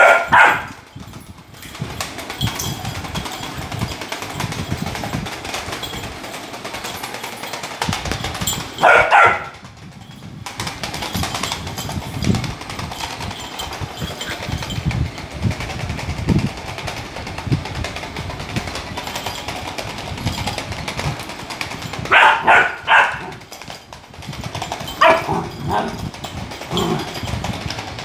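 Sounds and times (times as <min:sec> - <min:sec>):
puppy barking: 0:00.0 - 0:00.8, 0:08.8 - 0:09.6, 0:22.1 - 0:23.4, 0:25.0 - 0:26.0
toy ball rattling buzz: 0:00.0 - 0:28.0.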